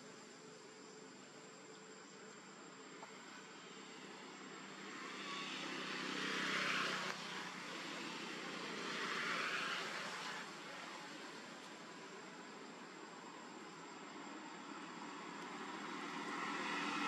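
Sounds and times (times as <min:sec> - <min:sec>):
vehicles passing: 0:03.8 - 0:12.2, 0:14.6 - 0:17.0.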